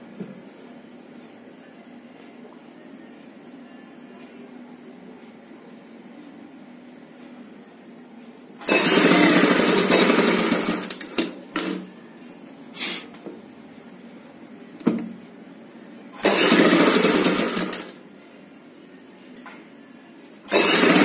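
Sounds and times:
sewing machine stitching: 8.6 - 11.8, 16.2 - 18.0, 20.5 - 21.0.

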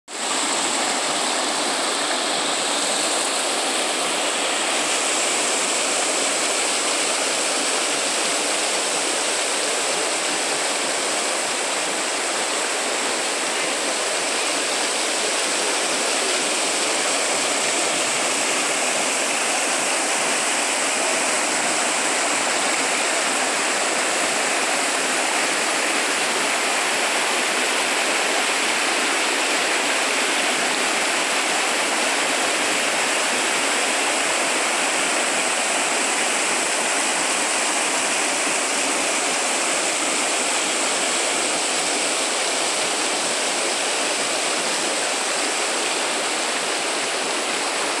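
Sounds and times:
water rushing over rocks: 0.1 - 48.0.

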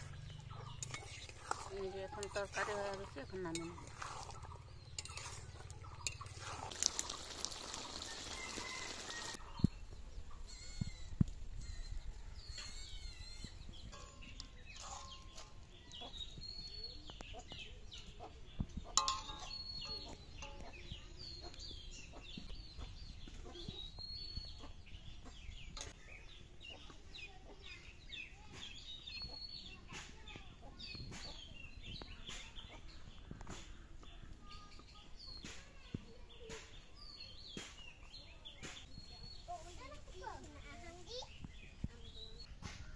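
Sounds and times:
birds chirping: 0.0 - 42.9
ladle clinking on steel plate: 19.0 - 20.7.

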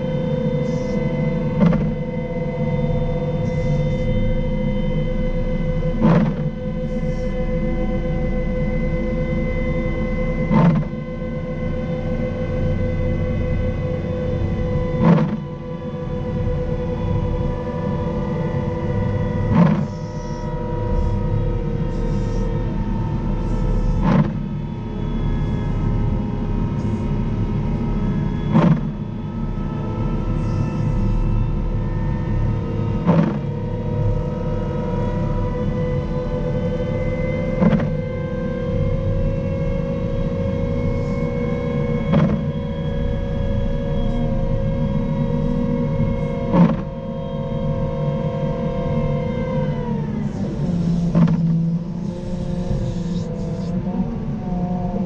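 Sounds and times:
loader diesel engine rumbling: 49.1 - 54.8.

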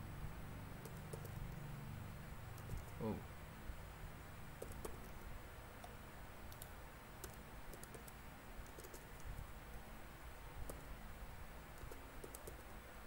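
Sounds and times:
low background hum: 0.0 - 13.0
keyboard typing: 0.8 - 1.6, 2.6 - 3.0, 4.6 - 5.2, 5.8 - 9.4, 10.6 - 10.8, 11.8 - 12.8.

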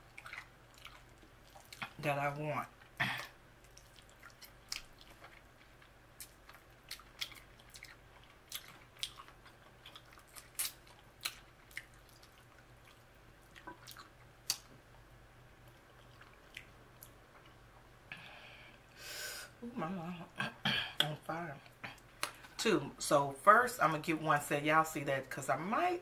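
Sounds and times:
wet chewing and mouth smacks: 0.0 - 2.0, 2.8 - 14.8, 15.6 - 17.6.

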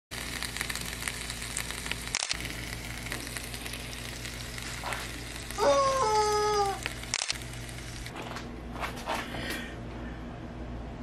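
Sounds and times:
meat sizzling on a griddle: 0.1 - 8.1.

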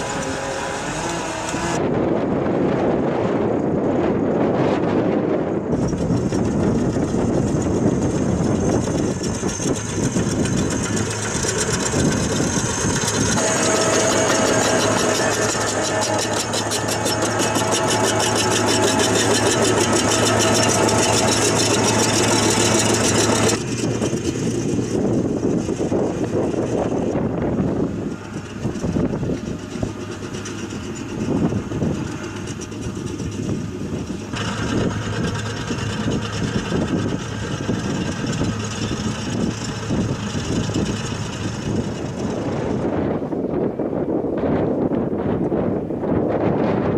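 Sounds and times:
tractor engine: 0.0 - 46.2
drain-laying machine diesel engine: 0.0 - 46.9.

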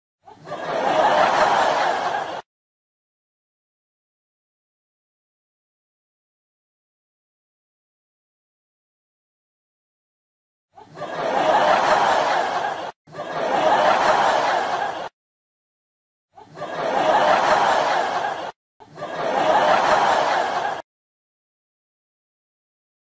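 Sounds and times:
canned audience laughter: 0.2 - 2.5, 10.8 - 15.1, 16.4 - 20.8.

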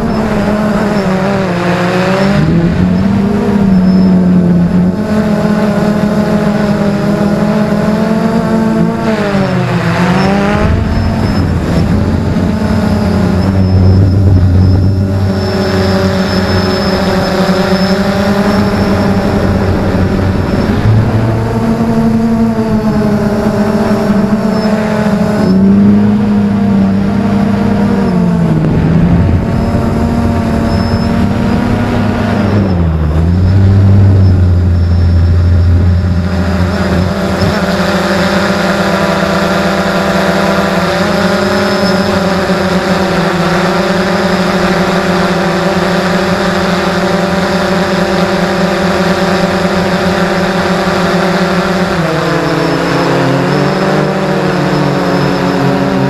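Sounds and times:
quadcopter motors humming: 0.0 - 56.0.

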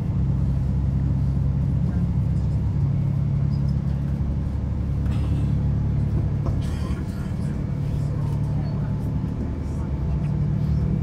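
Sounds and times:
diesel engine drone: 0.0 - 11.0
train wheels rumbling on track: 0.0 - 11.0.

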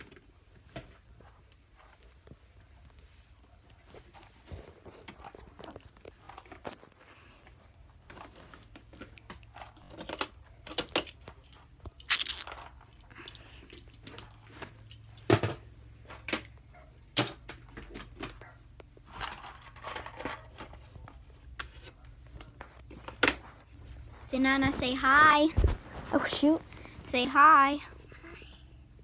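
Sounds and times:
crackers being chewed: 4.8 - 7.8.

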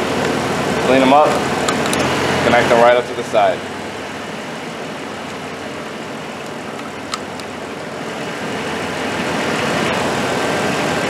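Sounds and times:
car engine idling: 0.0 - 11.0
hose coupler clicking onto port: 6.4 - 7.5.

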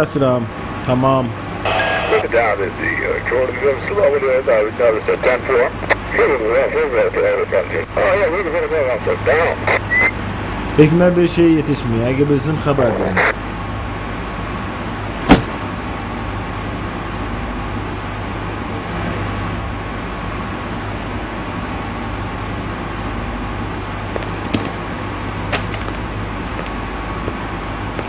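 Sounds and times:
steady low hum: 0.0 - 28.0
sharp knock: 15.3 - 15.6.

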